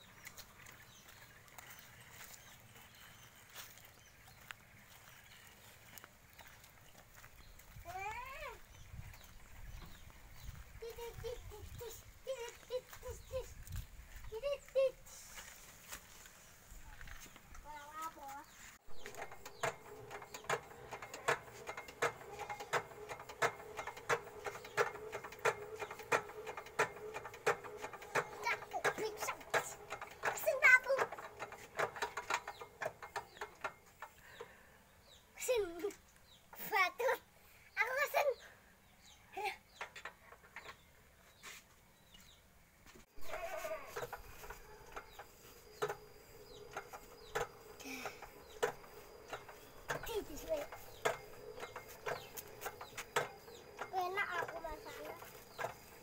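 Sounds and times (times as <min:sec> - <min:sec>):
engine hand crank clicking: 0:19.0 - 0:34.2, 0:43.3 - 0:56.0
animal bleating: 0:43.2 - 0:44.1.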